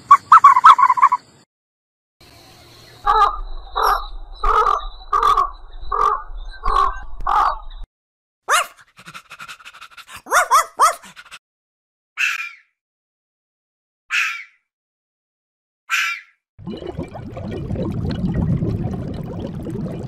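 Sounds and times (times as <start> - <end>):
bird calling: 3.0 - 7.8.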